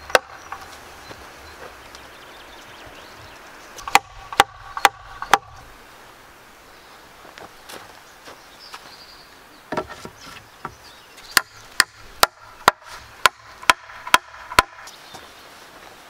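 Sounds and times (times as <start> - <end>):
hatchet striking wood: 0.0 - 0.7, 3.8 - 5.6, 10.6 - 14.9.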